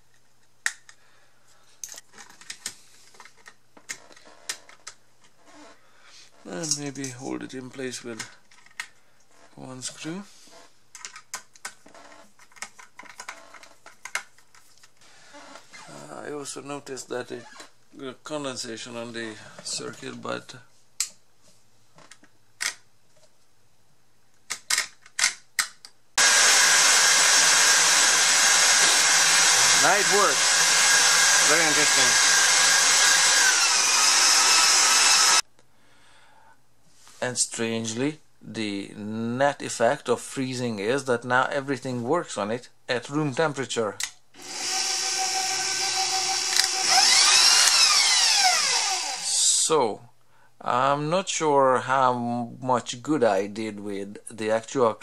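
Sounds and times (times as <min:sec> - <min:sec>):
plastic and metal parts clicking: 0:01.8 - 0:05.0, 0:10.9 - 0:15.0, 0:24.4 - 0:26.0
stand mixer motor running: 0:26.2 - 0:35.4, 0:44.4 - 0:49.2.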